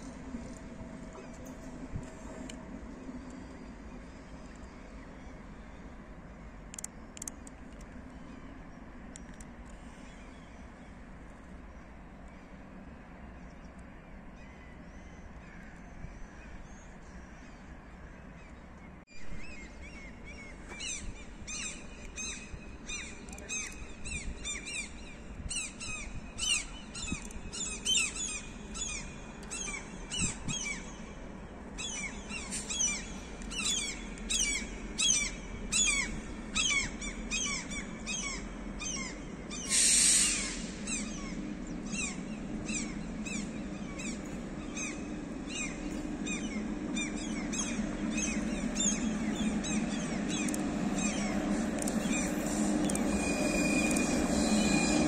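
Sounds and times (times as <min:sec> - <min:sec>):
low train hum: 0:00.0 - 0:55.0
birds chirping: 0:19.6 - 0:55.0
brief hiss: 0:39.7 - 0:40.8.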